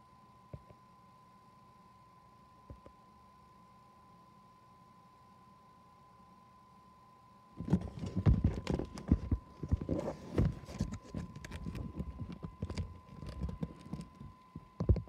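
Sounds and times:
phone handling thumps and knocks: 7.6s - 15.0s
rubbing on microphone: 7.6s - 15.0s.

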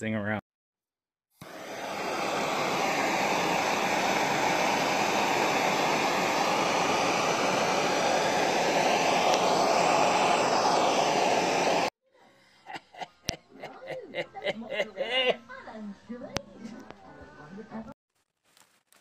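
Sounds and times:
gas torch hissing: 1.4s - 11.9s.

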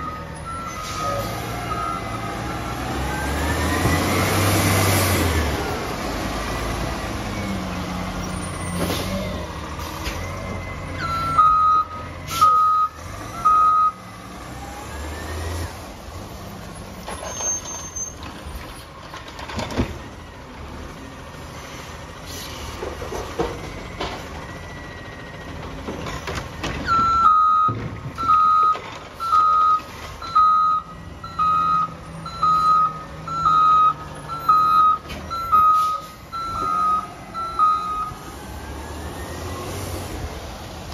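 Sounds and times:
reversing beeps: 0.0s - 2.2s, 10.1s - 14.0s, 26.8s - 38.2s
garbage truck diesel engine: 0.0s - 40.9s.

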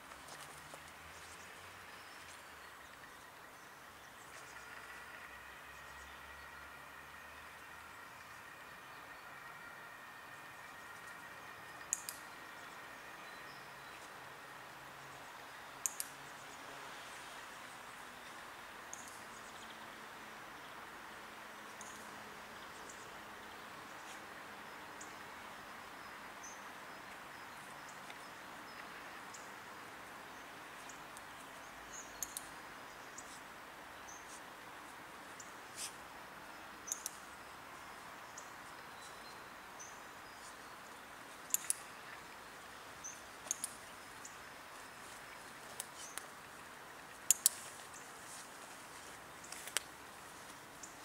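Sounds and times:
sharp clicks: 11.8s - 12.2s, 15.8s - 16.2s, 32.2s - 32.5s, 41.5s - 41.9s, 43.4s - 43.8s, 47.2s - 47.6s
small birds chirping: 30.2s - 51.0s.

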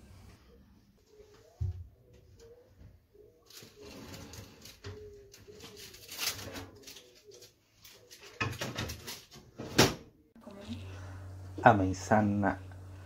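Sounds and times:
metal baking tray scraping: 3.6s - 6.9s.

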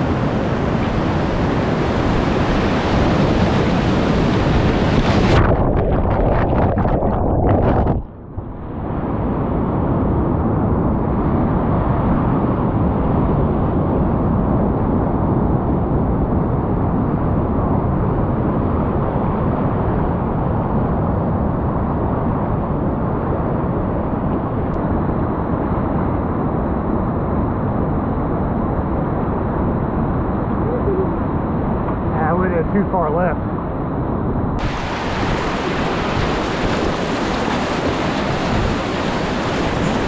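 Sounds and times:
whitewater rapids rushing: 34.6s - 40.0s.

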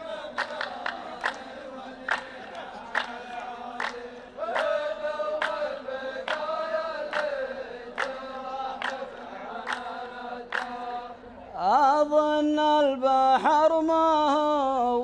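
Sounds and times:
hand claps: 0.0s - 11.0s
men chanting in unison: 0.0s - 15.0s.

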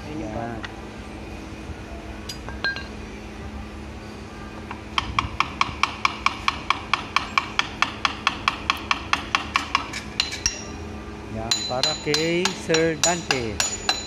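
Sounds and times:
metal pipe tapping metal: 5.0s - 10.8s, 11.5s - 14.0s.

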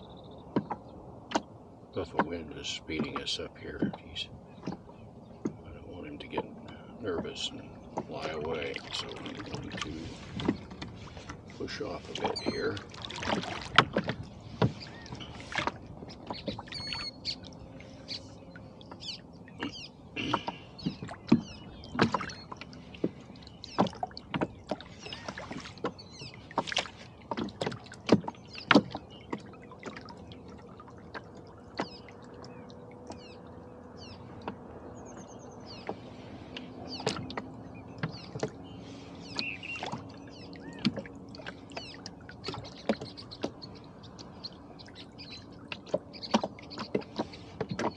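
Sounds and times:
rowboat and oars knocking: 0.4s - 47.9s
faint bird chirps: 16.3s - 22.6s, 37.8s - 40.9s.

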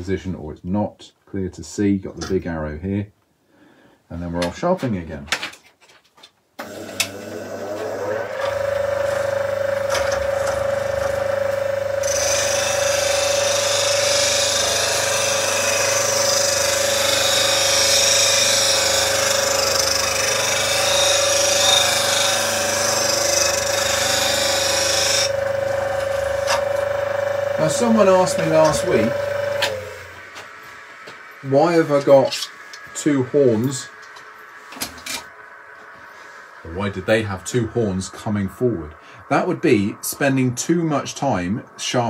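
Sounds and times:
bench grinder humming: 6.6s - 39.8s
gouge grinding against wheel: 7.8s - 30.5s.

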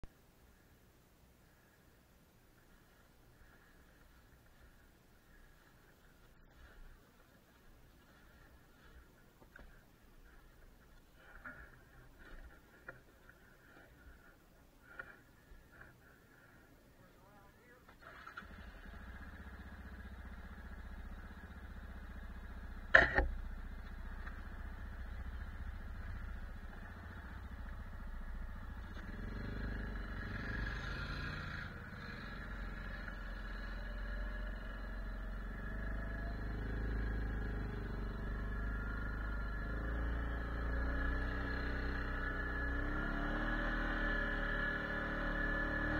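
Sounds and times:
atv engine: 2.6s - 45.9s
sharp clunk: 22.9s - 23.4s.

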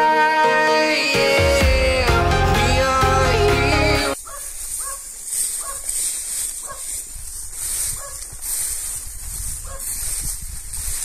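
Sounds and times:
dog barking: 4.2s - 6.0s, 6.6s - 7.0s, 8.0s - 8.3s, 9.6s - 9.9s.

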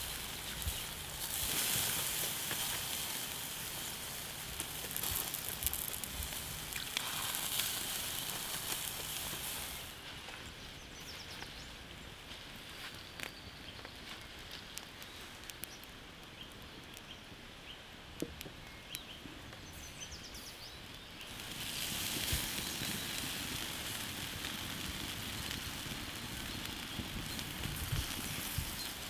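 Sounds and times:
pig skin and fat sizzling: 0.0s - 10.0s, 21.3s - 29.0s
wood embers crackling: 0.0s - 29.0s.

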